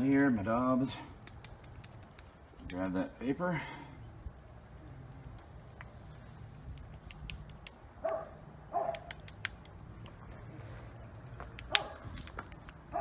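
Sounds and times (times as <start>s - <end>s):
dog barking: 8.0s - 9.1s, 11.7s - 12.0s.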